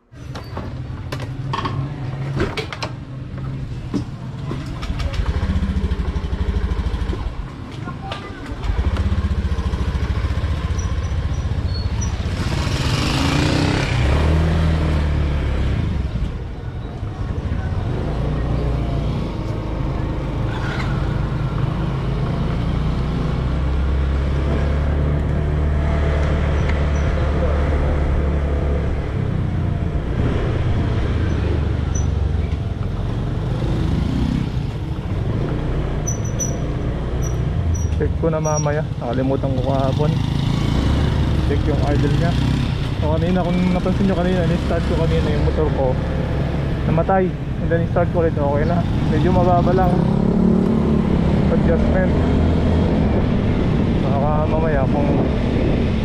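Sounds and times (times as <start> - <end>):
wind and road noise: 0.0 - 56.0
scooter engine running: 8.6 - 11.4.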